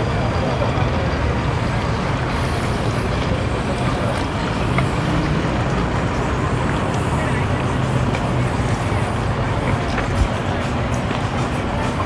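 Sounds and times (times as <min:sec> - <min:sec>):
outboard motors idling: 0:00.0 - 0:12.0.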